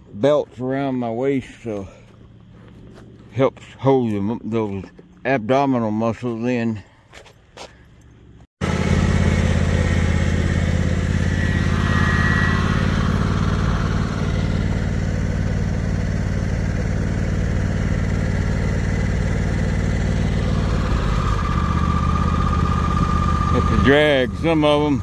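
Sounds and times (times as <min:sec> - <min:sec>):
riding lawn mower engine: 0:08.6 - 0:25.0.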